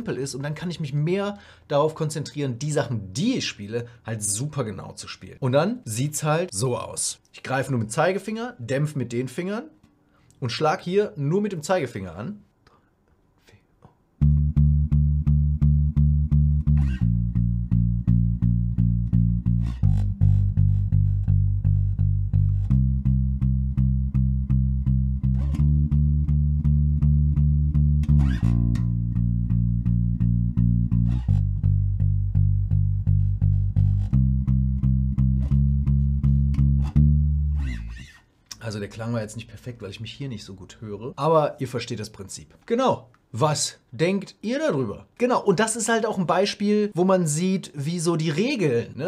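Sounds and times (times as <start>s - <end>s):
muted electric bass notes: 14.2s - 38.1s.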